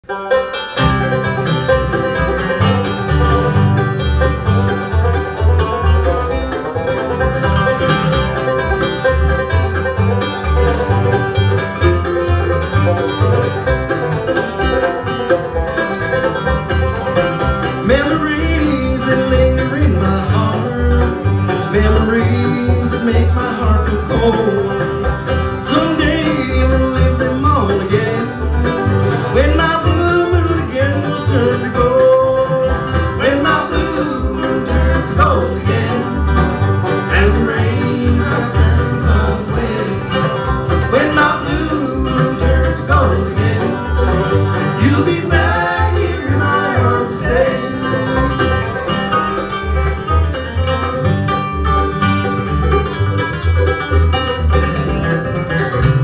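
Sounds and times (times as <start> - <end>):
bluegrass band playing: 0.0 - 56.0
upright bass plucking: 0.0 - 56.0
man singing: 17.8 - 25.0, 25.6 - 28.4, 29.3 - 36.4, 37.0 - 44.1, 44.7 - 48.6.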